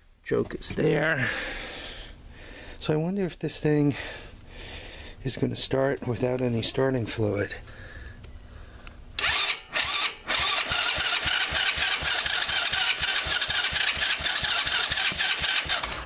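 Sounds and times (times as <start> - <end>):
electric starter cranking engine: 9.2 - 16.0.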